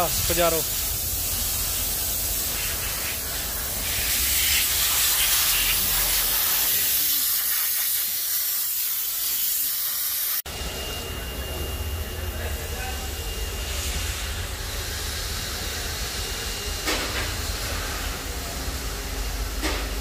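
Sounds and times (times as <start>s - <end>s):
steady hissing: 0.0s - 10.4s.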